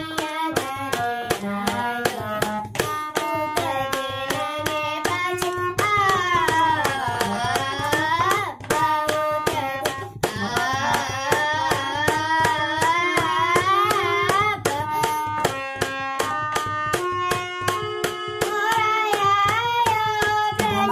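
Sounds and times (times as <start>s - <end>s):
boy singing: 0.0s - 20.9s
sharp regular tapping beat: 0.0s - 20.9s
harmonium reed notes: 0.4s - 8.4s, 9.0s - 20.9s.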